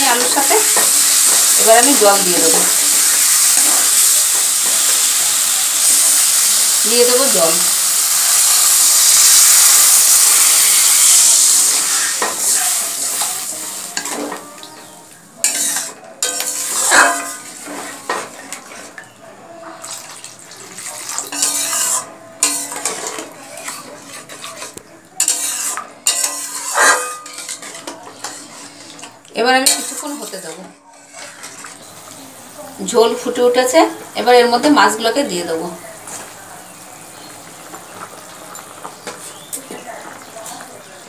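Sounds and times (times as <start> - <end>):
water hissing in hot pan: 0.0 - 17.7, 31.6 - 41.0
metal spatula scraping pan: 8.4 - 19.0, 20.8 - 32.0.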